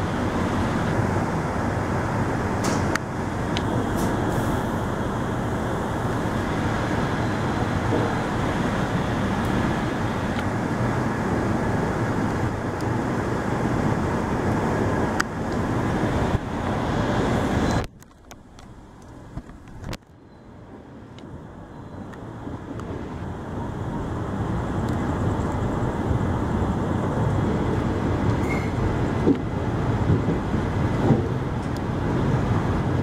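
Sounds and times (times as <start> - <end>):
rushing air: 0.0 - 20.0
train wheels rumbling on rails: 0.0 - 33.0.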